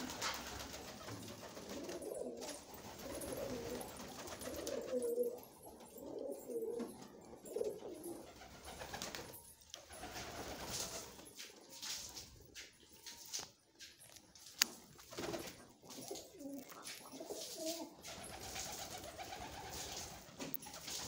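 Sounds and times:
pigeons cooing: 0.0 - 9.2, 15.7 - 21.0.

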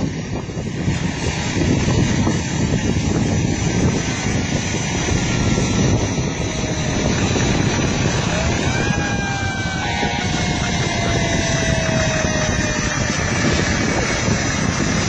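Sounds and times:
large fire roaring: 0.0 - 15.0
wind buffeting microphone: 0.0 - 15.0
faint siren wail: 5.2 - 14.8.

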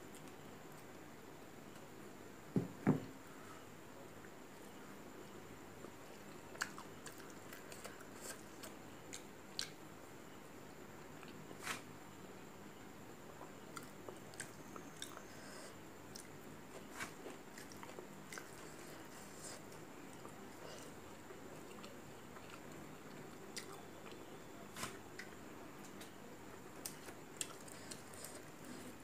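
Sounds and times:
person chewing food: 5.8 - 9.8, 16.1 - 24.3, 26.8 - 28.9.

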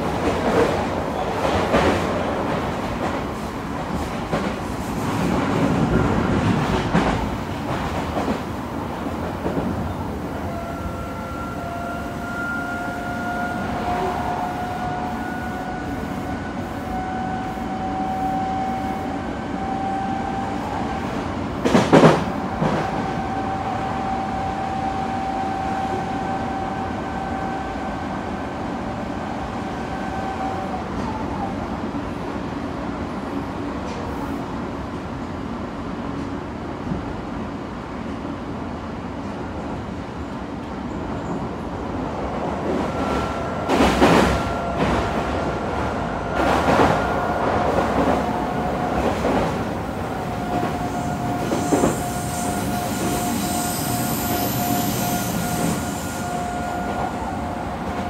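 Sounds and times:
train wheels rumbling on rail: 0.0 - 58.0
electric train whine: 1.2 - 33.4, 40.0 - 58.0.

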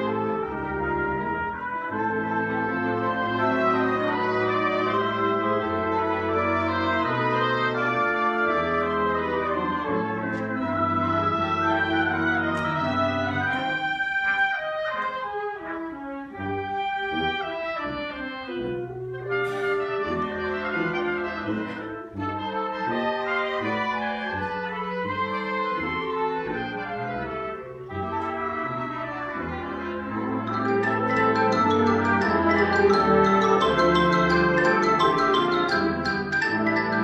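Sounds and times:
concert band playing: 19.0 - 24.4, 26.5 - 37.0.

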